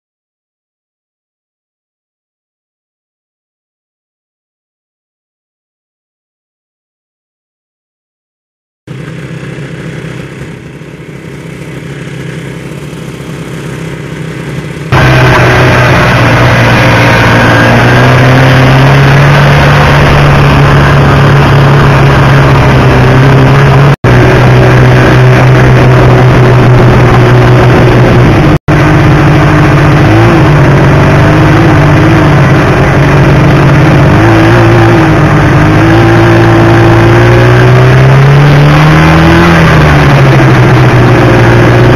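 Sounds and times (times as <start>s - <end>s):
snowmobile engine running: 8.9s - 41.9s.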